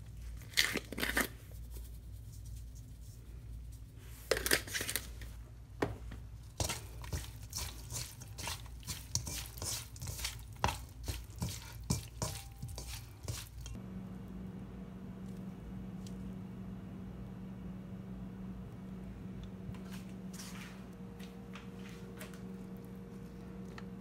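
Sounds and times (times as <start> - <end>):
wet squishes of shrimp: 6.4 - 13.8.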